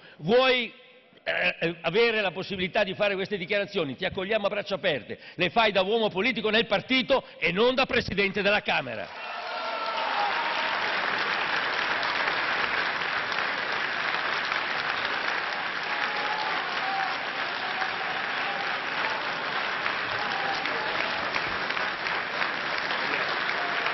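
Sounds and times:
audience applauding: 9.2 - 23.9.

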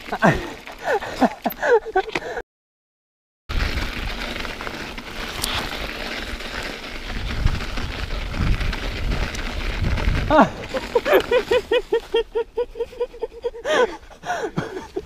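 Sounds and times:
tyres rolling over snow: 0.0 - 1.8, 3.5 - 15.0
wind rumbling on microphone: 3.5 - 11.9.

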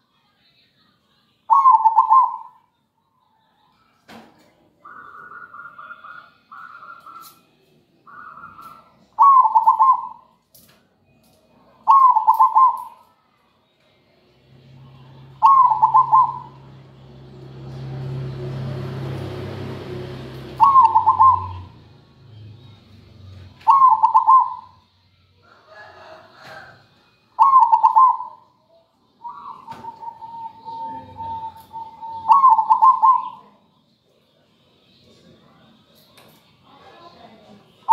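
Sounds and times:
dove cooing: 1.5 - 2.6, 8.1 - 10.3, 11.8 - 13.0, 15.2 - 16.8, 17.8 - 21.9, 23.6 - 24.8, 27.4 - 28.5, 29.2 - 33.5.

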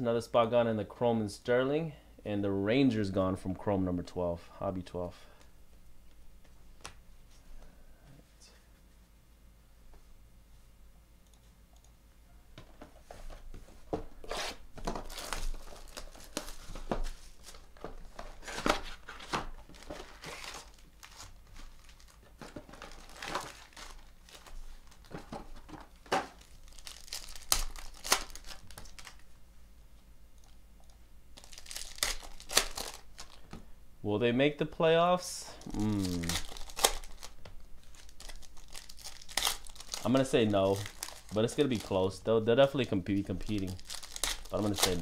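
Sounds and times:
plastic wrap tearing and crinkling: 14.3 - 25.2, 25.9 - 29.3, 31.4 - 33.4, 35.6 - 42.2, 43.1 - 45.0
foil packs rustling: 14.3 - 29.2, 31.4 - 33.5, 35.6 - 45.0.

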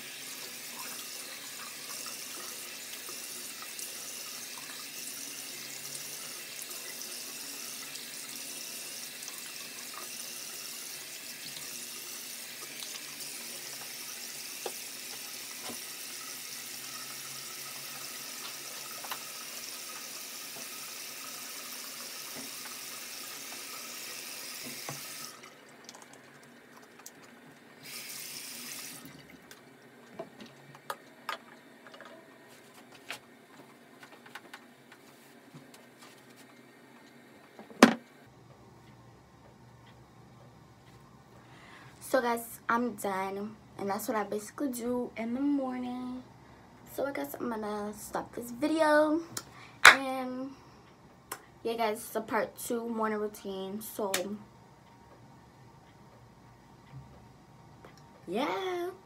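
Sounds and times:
sink tap running: 0.0 - 32.0.

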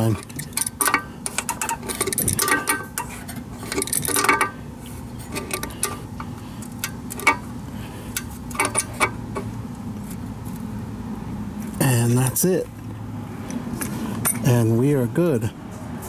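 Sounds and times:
wrench clinking on metal bolts: 0.0 - 4.6, 5.3 - 7.5, 8.2 - 9.2, 13.8 - 14.6.

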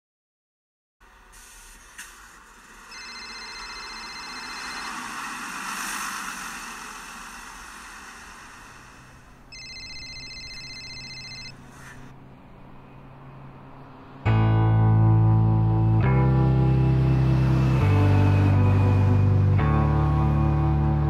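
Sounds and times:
street traffic: 1.0 - 21.0
phone ringing electronic trill: 2.9 - 5.3, 9.5 - 11.6.

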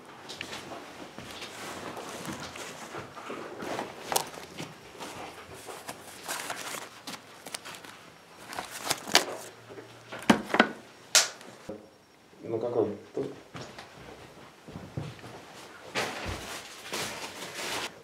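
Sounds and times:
fabric bag rustling: 1.3 - 9.5.

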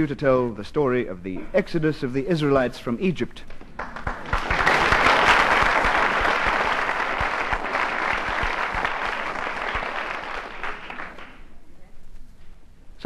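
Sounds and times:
audience applauding: 3.8 - 11.4.

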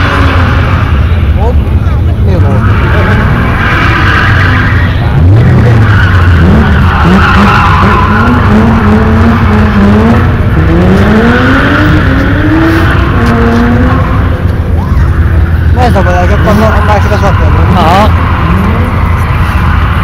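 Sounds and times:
car engine revving hard: 0.0 - 20.0
tyres skidding and squealing: 0.0 - 20.0.

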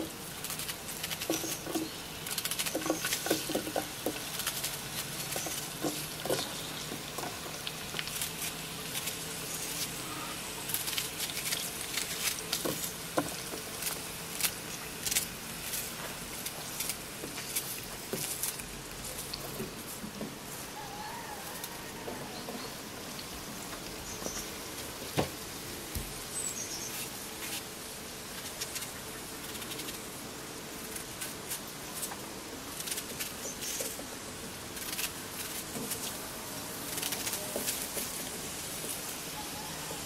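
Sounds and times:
wooden spoon stirring in pot: 2.6 - 9.4.

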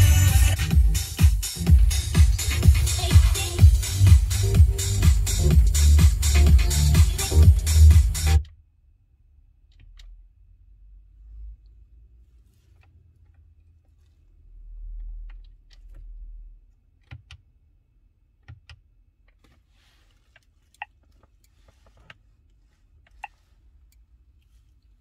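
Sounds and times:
low rumble: 0.0 - 8.4.

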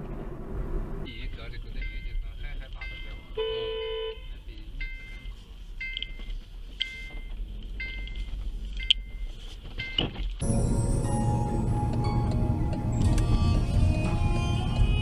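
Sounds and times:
low traffic rumble: 0.0 - 15.0
high electronic warning beep: 1.7 - 10.0
background music: 10.4 - 15.0.

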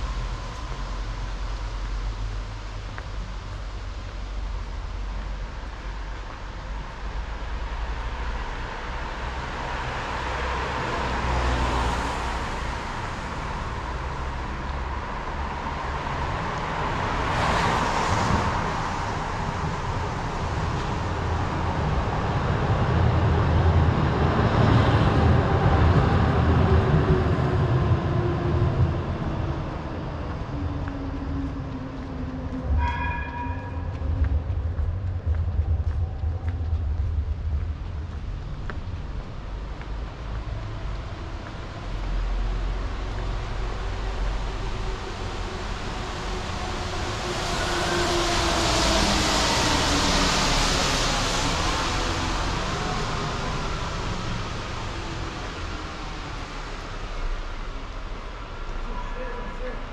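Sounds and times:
vehicles swishing on wet street: 0.0 - 59.9
heavy low rumble: 18.4 - 59.8.

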